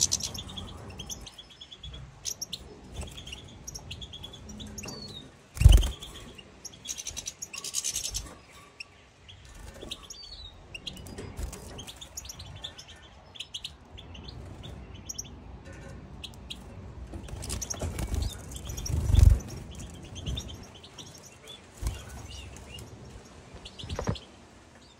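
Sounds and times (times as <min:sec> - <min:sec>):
finches twittering: 0:00.0 - 0:08.6, 0:17.2 - 0:24.3
wing flutters: 0:17.3 - 0:20.0.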